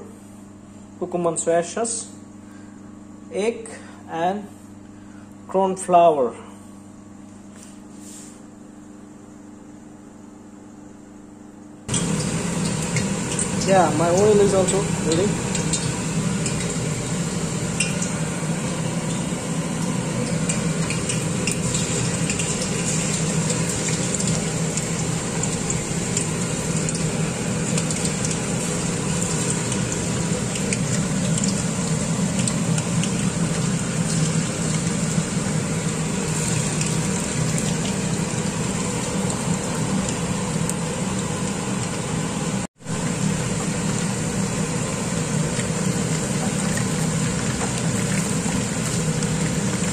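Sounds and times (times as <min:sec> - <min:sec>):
food deep-frying in hot oil: 0:11.9 - 0:49.9.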